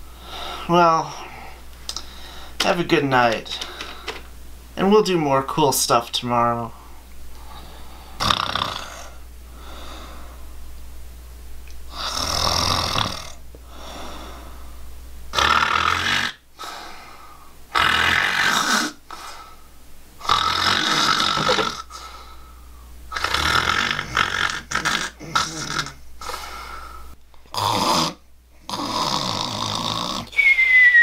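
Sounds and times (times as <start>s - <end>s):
quiet breaths: 0.0s - 2.6s, 6.7s - 8.2s, 9.0s - 10.6s, 13.6s - 14.9s, 16.5s - 17.6s, 21.8s - 23.0s, 26.2s - 27.2s
man snoring: 8.2s - 9.2s, 11.9s - 14.2s, 15.3s - 16.4s, 17.7s - 19.0s, 20.2s - 22.1s, 23.1s - 26.4s, 27.5s - 30.4s.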